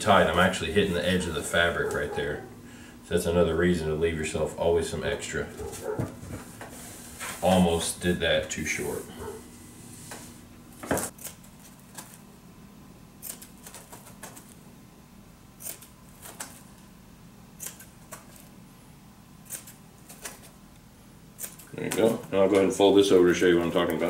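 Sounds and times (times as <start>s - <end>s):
scissors snipping carpet: 15.6s - 16.6s, 17.6s - 18.5s, 19.4s - 20.6s.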